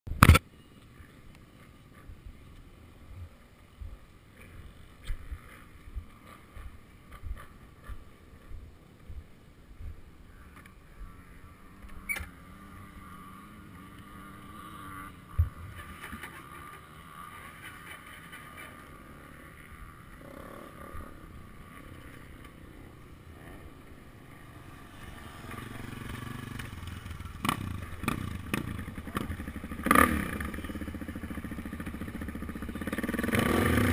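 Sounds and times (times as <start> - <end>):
road noise: 0.1 - 33.9
sharp click: 0.2 - 0.4
motorcycle engine running: 10.9 - 33.9.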